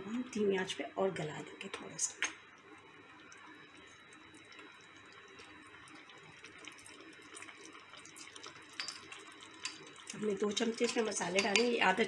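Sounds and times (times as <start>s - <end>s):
stew simmering in a pot: 0.0s - 12.0s.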